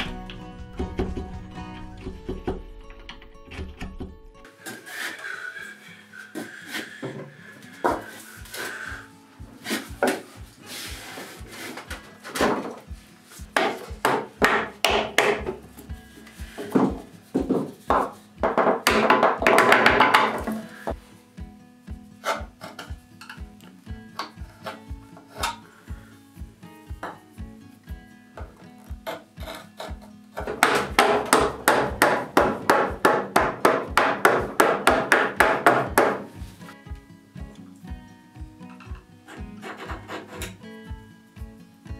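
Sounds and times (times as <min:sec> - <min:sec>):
hand tool scraping wood: 0:04.5 - 0:08.9, 0:09.5 - 0:18.3, 0:22.2 - 0:22.9, 0:24.2 - 0:25.7, 0:28.8 - 0:36.7, 0:39.3 - 0:40.6
wood pieces rubbing and knocking: 0:09.6 - 0:21.0, 0:22.2 - 0:23.5, 0:38.8 - 0:40.6
tool knocking on wood: 0:13.6 - 0:15.6, 0:16.6 - 0:20.6, 0:30.0 - 0:36.3.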